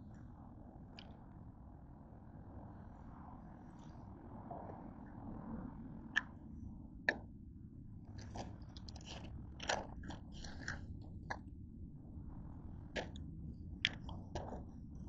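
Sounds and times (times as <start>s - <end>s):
crunchy biting and chewing: 8.2s - 10.9s.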